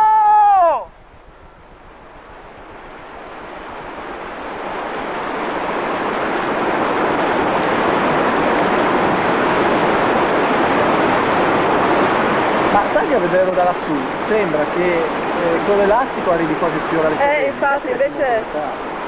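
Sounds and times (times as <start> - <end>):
steady rushing noise: 0.0 - 19.0.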